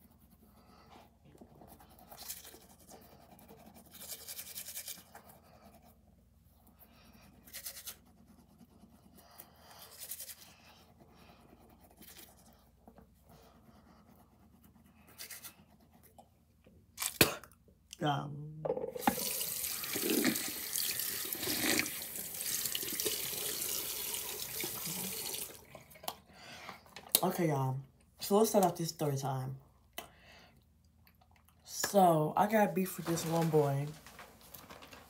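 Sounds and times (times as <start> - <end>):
toothbrush scrubbing teeth: 1.3 - 6.0, 6.8 - 16.4, 19.0 - 26.2.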